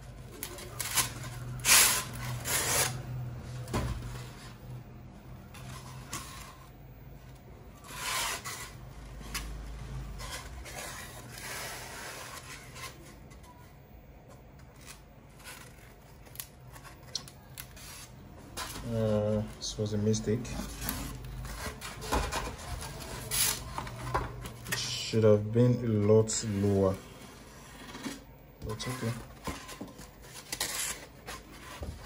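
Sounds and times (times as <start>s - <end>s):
polystyrene foam scraping: 0.4s - 3.2s, 7.8s - 13.1s, 26.3s - 32.0s.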